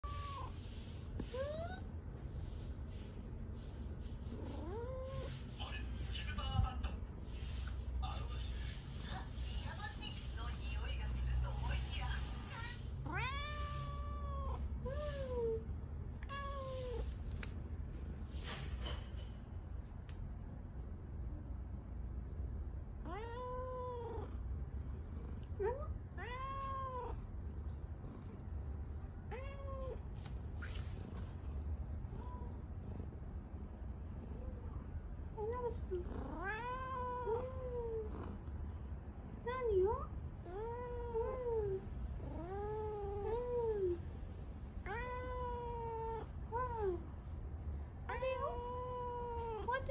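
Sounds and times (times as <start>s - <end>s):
cat chirping: 0.0s - 1.9s, 13.0s - 15.6s, 16.2s - 17.1s, 25.4s - 27.4s, 29.2s - 32.9s, 35.9s - 38.3s, 44.8s - 47.0s
cat meowing: 13.0s - 15.6s, 16.2s - 17.1s, 23.0s - 24.4s, 25.6s - 27.3s, 29.3s - 30.1s, 36.1s - 38.3s, 40.4s - 44.0s, 44.8s - 47.0s, 48.2s - 49.9s.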